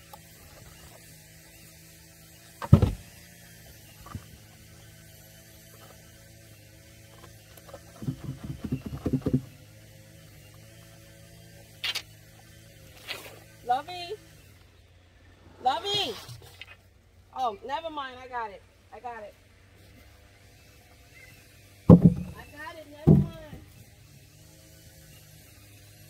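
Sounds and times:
distant lawn mower engine: 0.0 - 16.0, 20.4 - 26.0
loud thump: 2.6 - 3.1, 21.9 - 22.4, 23.0 - 23.6
plastic tubs knocking and rattling: 7.8 - 9.5, 21.9 - 23.6.

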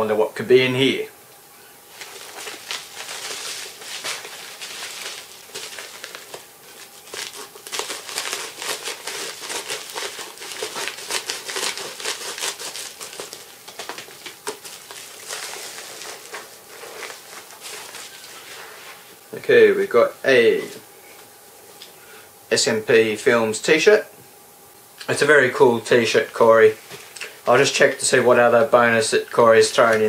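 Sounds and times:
plastic mailer crinkling: 1.9 - 19.2, 29.4 - 30.0.

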